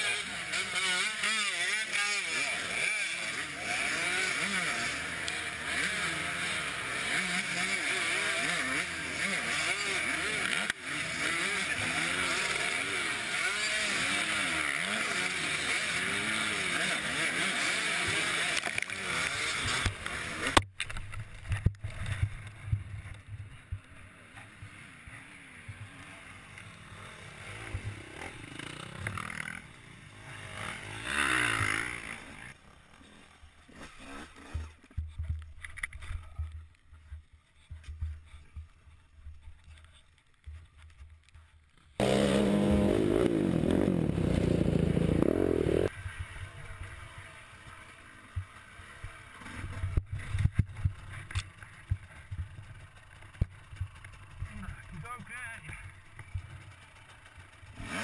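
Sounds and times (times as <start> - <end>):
dirt bike engines revving: 0.0 - 20.6, 21.4 - 35.2, 42.0 - 58.0
uneven low engine sound: 42.0 - 46.6.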